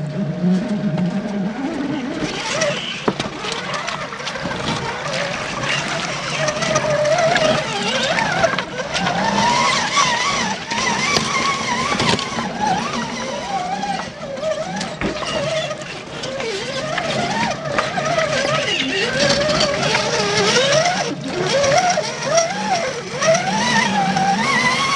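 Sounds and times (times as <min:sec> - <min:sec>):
electric motor whining: 0:00.0 - 0:24.9
tires clicking over rocks: 0:00.0 - 0:24.9
tires splashing through water: 0:00.6 - 0:24.9.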